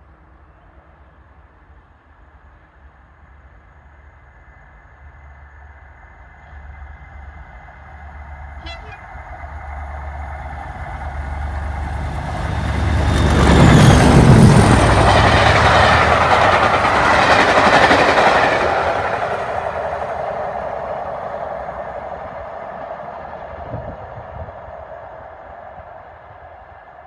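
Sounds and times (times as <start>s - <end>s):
diesel locomotive engines working hard: 0.1s - 27.0s
train coaches rushing and rattling: 8.4s - 22.5s.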